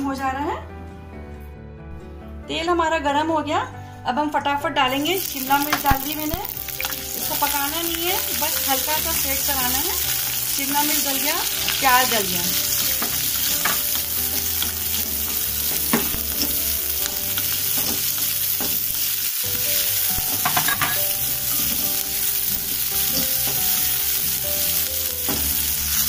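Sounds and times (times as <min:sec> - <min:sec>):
vegetables sizzling in hot oil: 0:05.0 - 0:26.0
spatula scraping and knocking pan: 0:12.6 - 0:16.6, 0:20.2 - 0:24.0.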